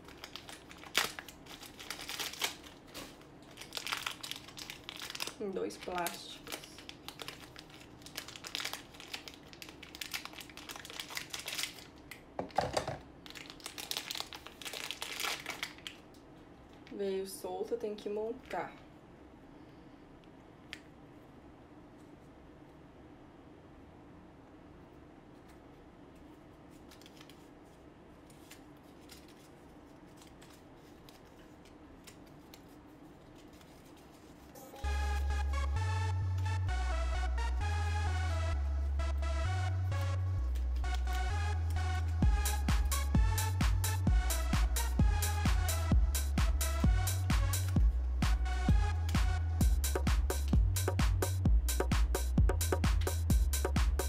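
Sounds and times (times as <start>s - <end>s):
plastic packaging crinkling: 0.0s - 17.0s, 26.7s - 34.8s
low steady hum: 0.0s - 54.0s.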